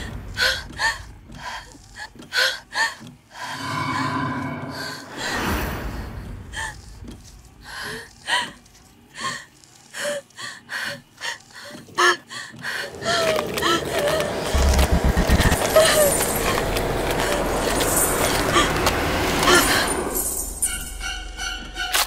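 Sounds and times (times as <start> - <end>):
woman gasping and whimpering: 15.5 - 16.6.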